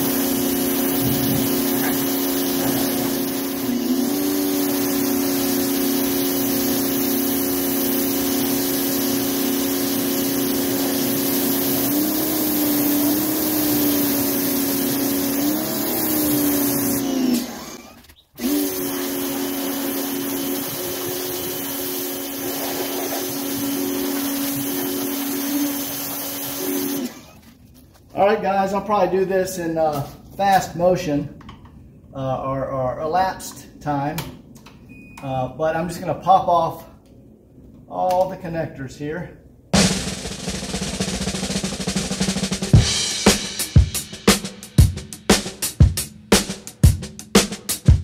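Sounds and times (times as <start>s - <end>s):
high-pressure water jet hissing: 0.0s - 27.4s
pressure washer motor hum: 0.0s - 27.6s.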